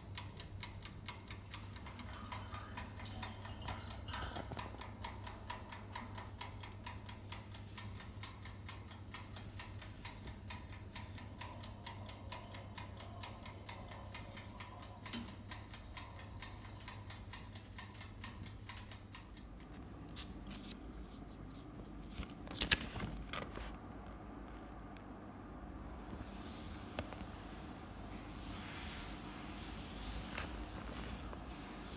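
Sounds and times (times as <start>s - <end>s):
oven timer ticking: 0.0s - 20.8s
low steady hum: 0.0s - 31.9s
paper rustling: 20.2s - 23.8s.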